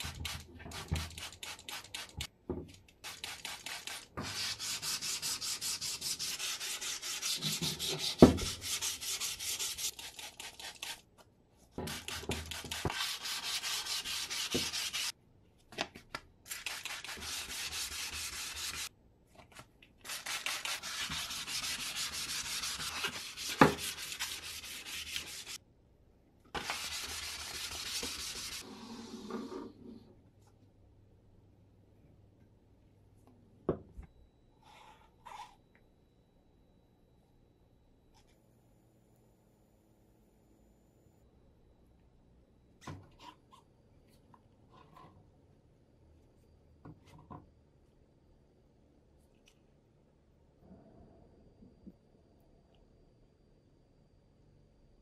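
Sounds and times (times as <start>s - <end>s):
hand sanding rubbing strokes: 3.5s - 11.0s, 11.9s - 15.1s, 16.7s - 18.9s, 20.1s - 25.6s, 26.6s - 28.6s.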